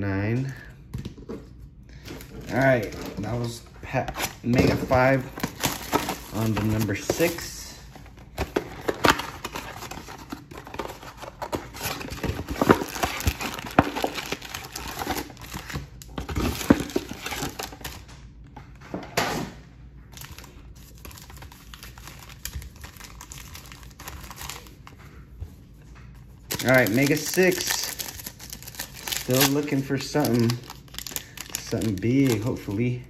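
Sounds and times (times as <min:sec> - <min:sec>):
packs rustling: 0:02.1 - 0:18.0, 0:26.5 - 0:32.8
cardboard and foil tearing: 0:04.1 - 0:07.9, 0:08.5 - 0:18.0, 0:20.2 - 0:24.8, 0:26.5 - 0:32.8.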